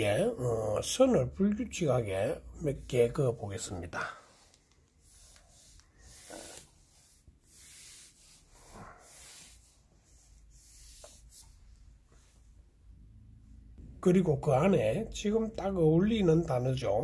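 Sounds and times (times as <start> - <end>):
pen scratching on paper: 5.0 - 11.6.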